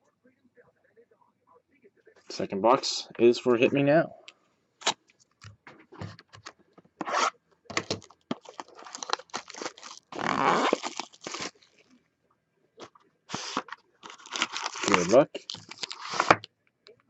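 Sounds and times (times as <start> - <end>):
cardboard box opened: 7.0 - 11.6, 13.3 - 16.4
plastic wrap crinkling and ripping: 7.8 - 12.0, 12.8 - 16.4.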